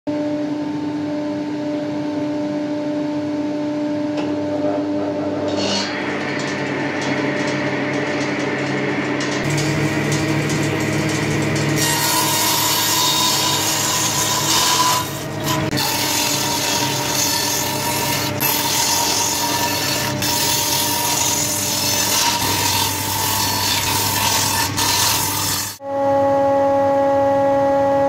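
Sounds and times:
table saw cutting wood: 0:05.0 - 0:08.0, 0:09.2 - 0:25.9.

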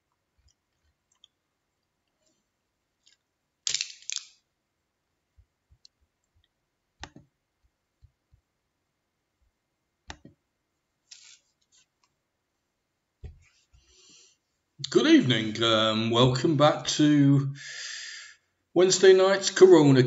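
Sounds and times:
quiet clicks: 0:05.7 - 0:07.3, 0:10.1 - 0:10.4.

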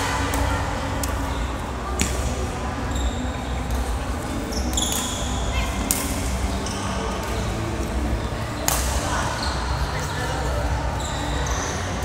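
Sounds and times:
shoe squeaks on court floor: 0:04.5 - 0:05.3
racket striking shuttlecock: 0:05.9 - 0:06.2.

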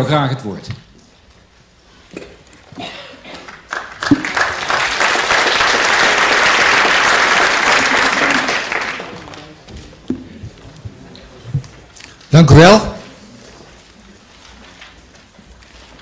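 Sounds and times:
audience applauding: 0:03.4 - 0:09.7.

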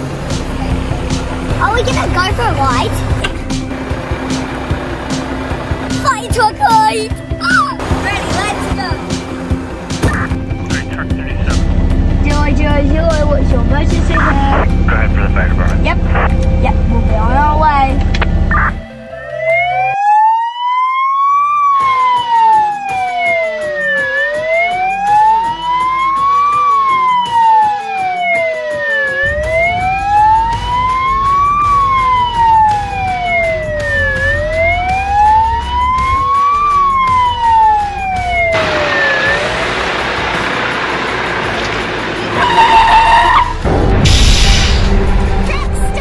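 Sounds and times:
truck engine running: 0:00.0 - 0:18.9, 0:27.8 - 0:46.0
fire truck siren wailing: 0:00.0 - 0:43.7.

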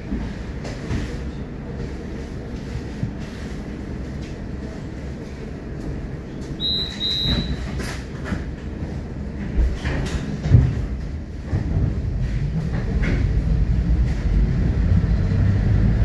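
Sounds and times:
tram rumble: 0:00.0 - 0:16.0.

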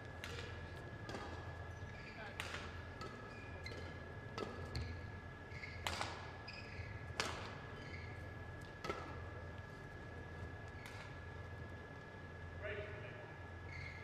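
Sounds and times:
racket hitting shuttlecock: 0:00.2 - 0:01.4, 0:02.4 - 0:04.9, 0:05.8 - 0:06.3, 0:07.2 - 0:07.6, 0:08.8 - 0:09.3, 0:10.8 - 0:11.2.

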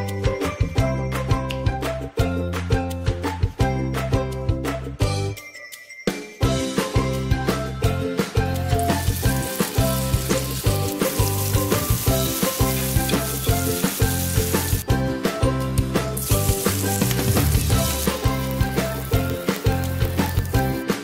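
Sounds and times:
background music with a beat: 0:00.0 - 0:21.0
oil sizzling in a frying pan: 0:08.5 - 0:14.9, 0:16.1 - 0:21.0.

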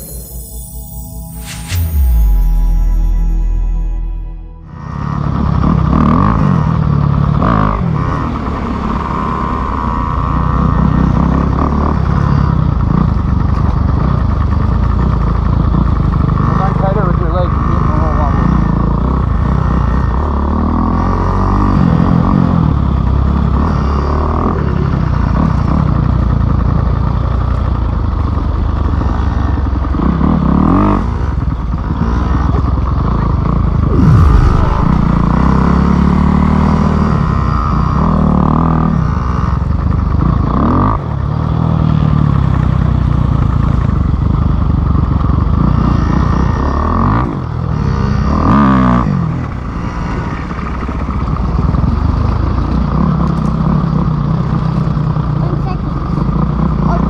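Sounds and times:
dirt bike engine revving: 0:33.8 - 0:37.7.

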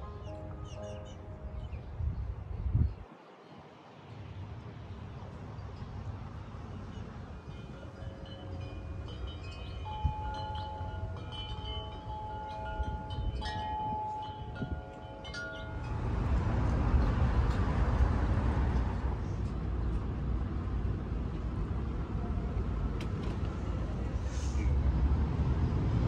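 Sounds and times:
wind chimes ringing: 0:06.8 - 0:16.4.

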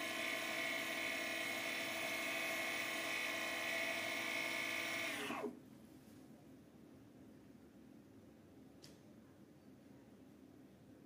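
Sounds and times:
lathe motor whine: 0:00.0 - 0:05.6.

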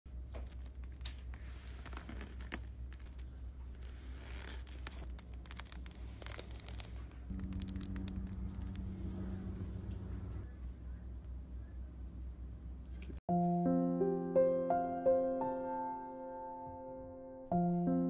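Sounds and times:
steady low hum: 0:06.8 - 0:13.2
steady low tone: 0:07.3 - 0:15.2.

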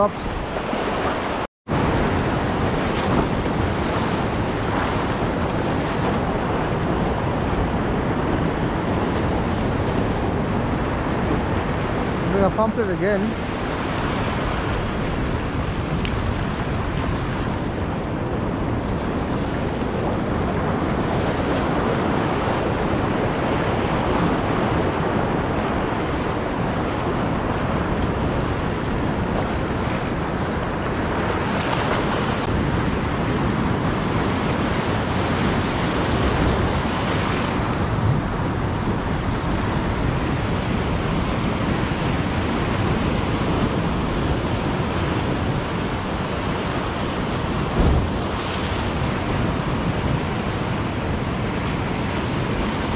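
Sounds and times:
wind buffeting microphone: 0:00.0 - 0:52.9
surf breaking over rocks: 0:47.1 - 0:50.5.

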